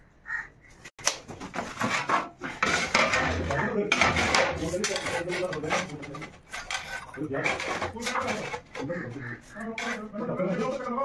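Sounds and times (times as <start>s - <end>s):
ceramic tiles clattering: 2.6s - 8.8s.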